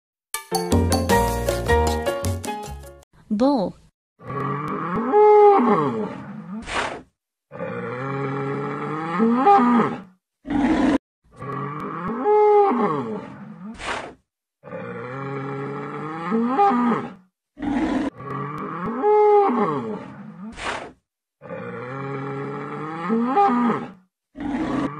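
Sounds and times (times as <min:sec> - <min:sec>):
bull bellowing: 0:04.2 - 0:06.8, 0:07.5 - 0:14.0, 0:14.6 - 0:20.7, 0:21.4 - 0:24.9.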